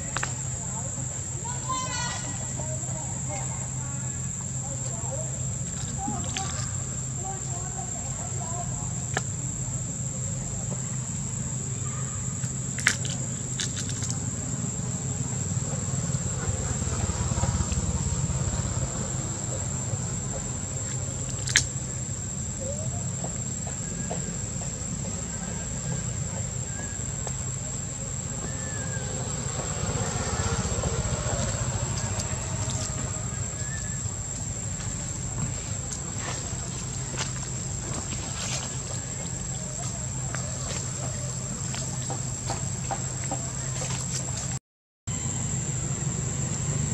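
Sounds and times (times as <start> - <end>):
insects droning: 0.0 - 46.9.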